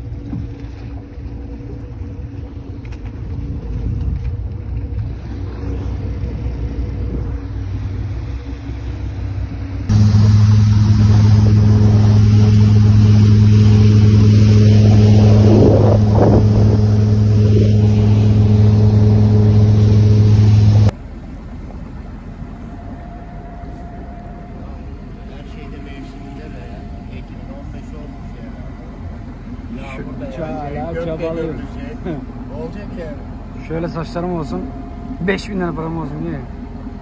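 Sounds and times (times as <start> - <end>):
boat motor running: 0.0 - 37.0
loud deep hum: 0.0 - 37.0
water rushing: 4.4 - 20.9.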